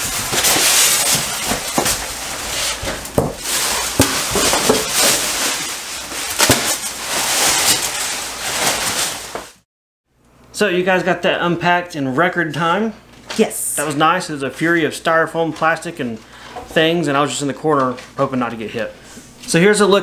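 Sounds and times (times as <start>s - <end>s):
plastic bags rustling and crinkling: 0.0s - 9.6s
styrofoam knocking and squeaking: 0.0s - 9.6s.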